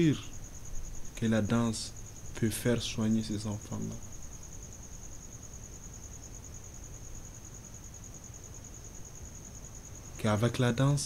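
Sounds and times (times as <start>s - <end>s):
faint low background noise: 0.0s - 11.0s
high-pitched insect trill: 0.0s - 11.0s.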